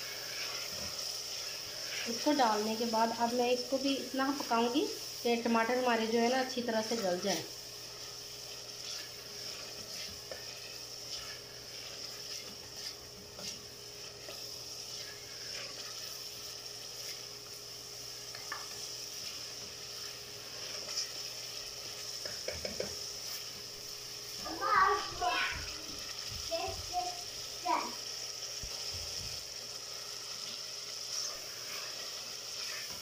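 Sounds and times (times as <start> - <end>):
spatula scraping a pot: 0.0 - 2.4, 6.2 - 17.4, 18.3 - 23.4, 31.0 - 33.0
food sizzling in oil: 0.0 - 33.0.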